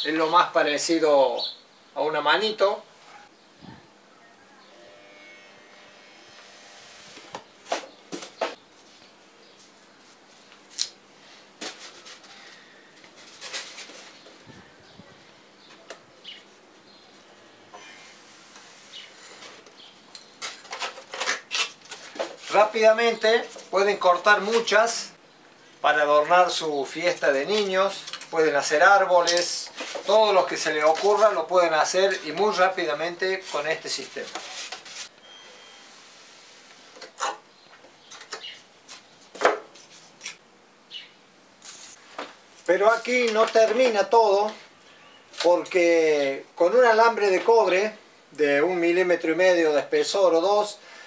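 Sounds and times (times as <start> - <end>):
scraping and rubbing polystyrene foam: 13.1 - 14.2, 29.7 - 35.1
polystyrene foam scraping: 33.3 - 35.1, 41.6 - 42.1.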